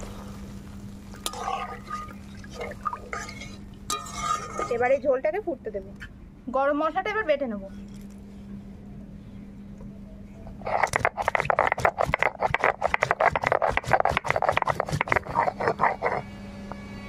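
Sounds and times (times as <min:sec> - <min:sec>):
stone grinding on stone: 0:10.6 - 0:16.2.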